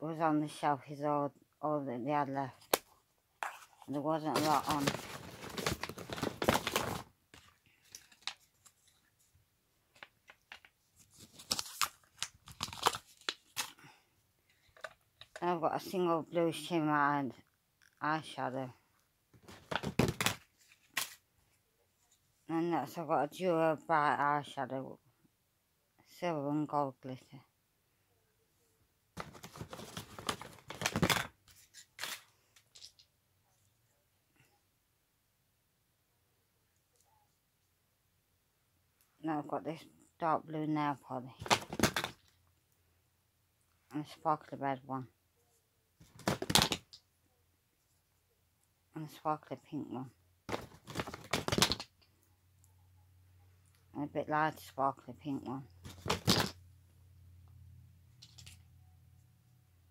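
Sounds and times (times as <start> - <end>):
packaging rustling and crinkling: 3.4 - 9.1, 9.9 - 13.8, 29.2 - 33.0, 41.4 - 42.2, 46.0 - 46.8, 50.5 - 51.9, 55.8 - 56.5.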